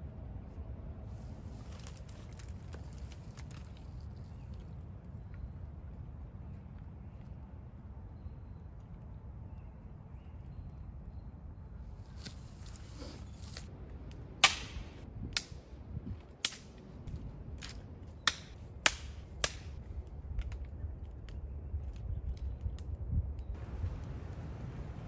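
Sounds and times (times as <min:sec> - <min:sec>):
dry wood cracking: 0:01.5 - 0:05.4, 0:16.2 - 0:23.0.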